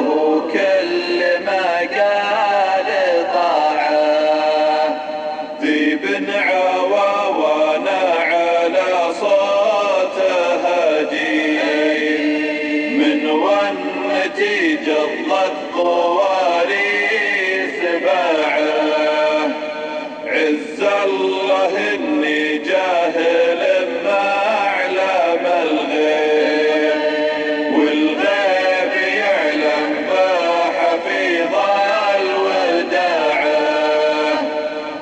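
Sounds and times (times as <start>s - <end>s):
man chanting melodic poem: 0.0s - 35.0s.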